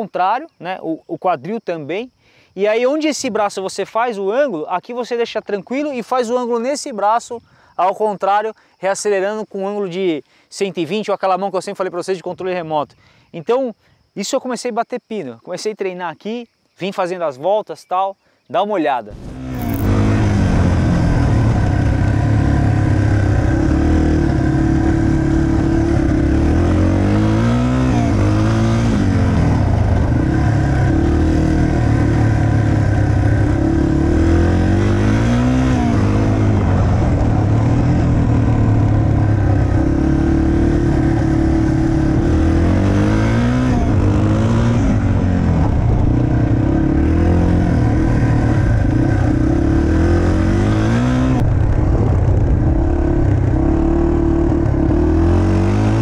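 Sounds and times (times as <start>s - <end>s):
motorcycle engine revving: 19.1s - 56.0s.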